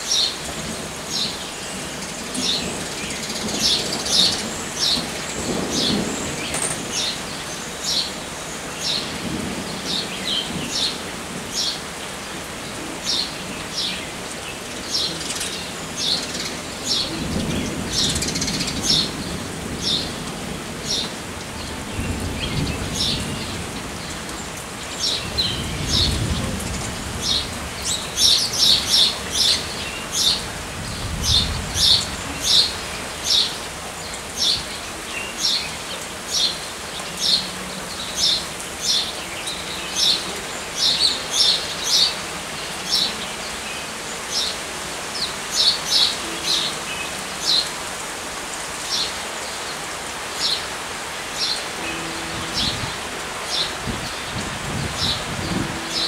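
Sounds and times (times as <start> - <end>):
low rumbles of wind: 0.0 - 39.4, 47.7 - 56.0
steady rain falling: 0.0 - 56.0.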